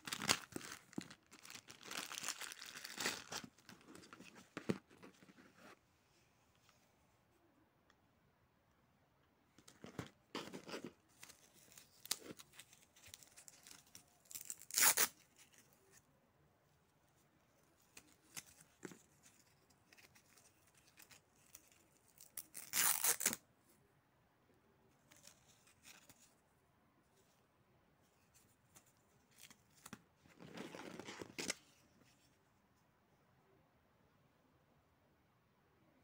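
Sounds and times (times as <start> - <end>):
strap rustling: 0.0 - 5.8, 9.6 - 16.0, 17.7 - 23.4, 28.1 - 32.3
velcro ripping apart: 13.3 - 15.2, 22.1 - 23.4.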